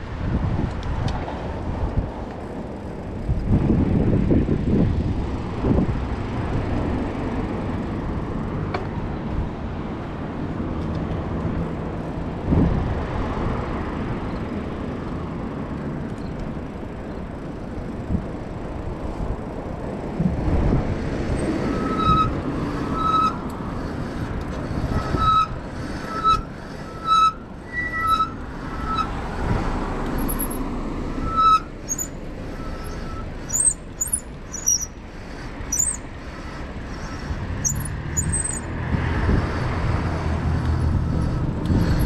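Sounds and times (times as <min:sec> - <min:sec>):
street traffic: 0:00.0 - 0:42.0
short high-pitched squeak: 0:21.6 - 0:23.4, 0:24.9 - 0:29.2, 0:30.2 - 0:35.0, 0:35.7 - 0:38.7
thin high chirps: 0:30.2 - 0:30.6, 0:31.5 - 0:35.0, 0:35.7 - 0:36.0, 0:37.6 - 0:38.7.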